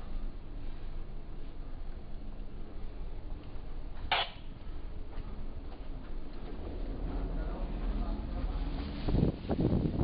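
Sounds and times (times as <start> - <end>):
low machinery rumble: 0.0 - 10.0.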